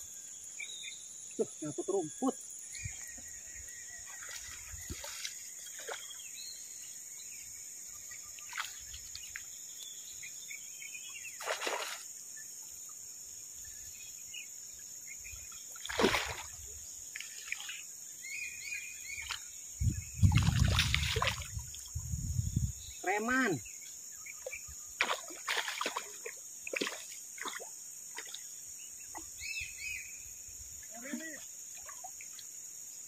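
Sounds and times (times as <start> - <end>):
birds chirping: 0.0 - 11.9, 22.4 - 27.6.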